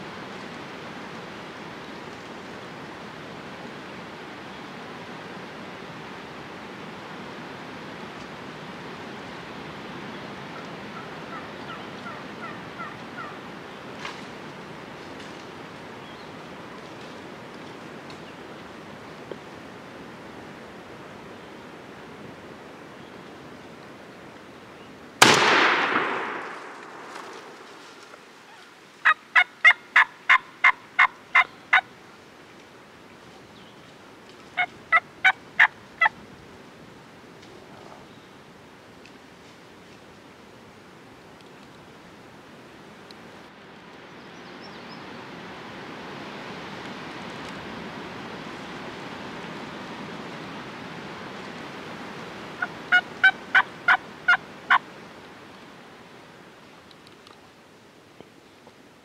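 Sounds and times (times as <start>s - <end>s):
wild turkey calling: 10.5s - 13.4s, 26.2s - 31.9s, 34.6s - 36.2s, 52.6s - 54.8s.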